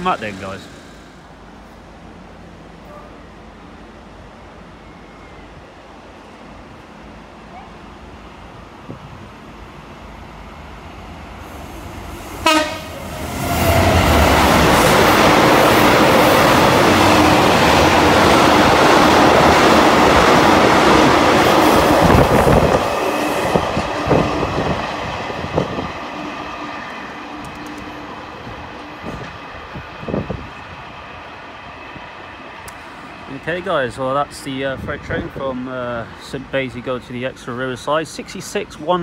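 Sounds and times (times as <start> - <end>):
diesel locomotive engine: 0.0 - 39.0
train horn blast: 12.4 - 13.0.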